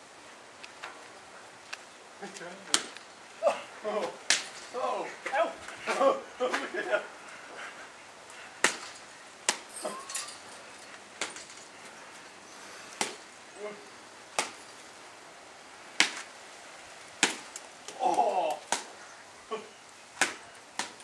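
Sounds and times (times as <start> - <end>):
bats striking tethered ball: 8.6 - 10.4, 13.0 - 13.3, 14.3 - 14.8, 16.0 - 16.3, 17.2 - 19.0.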